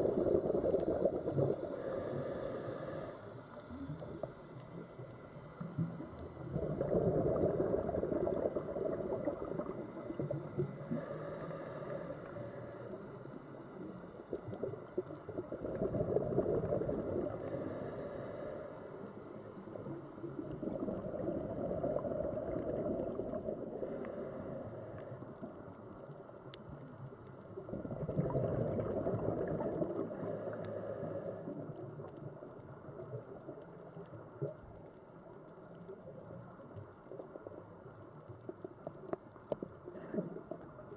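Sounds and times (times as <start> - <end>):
exhaled bubbles gurgling: 0.0 - 18.2, 19.5 - 40.9
regulator hissing on inhale: 0.0 - 25.5, 29.5 - 31.8.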